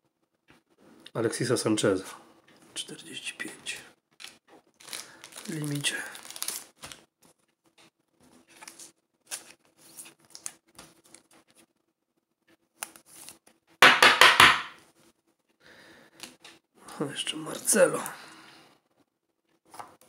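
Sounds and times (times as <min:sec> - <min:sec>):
plastic sleeves rustling: 0:04.1 - 0:11.8, 0:12.7 - 0:13.6.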